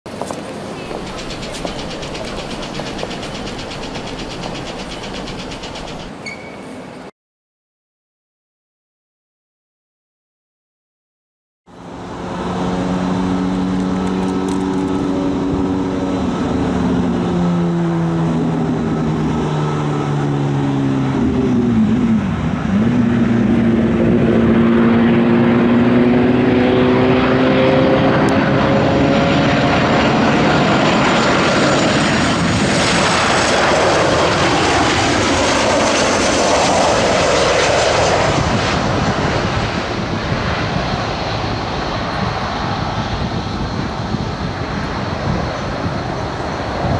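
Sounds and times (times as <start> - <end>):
jet airliner rumble: 0.1 - 6.4, 11.8 - 46.9
jet engine whining tones: 0.5 - 6.9, 26.4 - 46.9.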